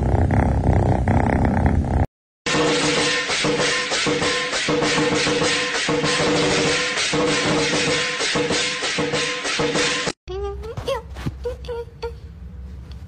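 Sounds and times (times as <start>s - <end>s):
background music with fast beat: 2.5s - 10.2s.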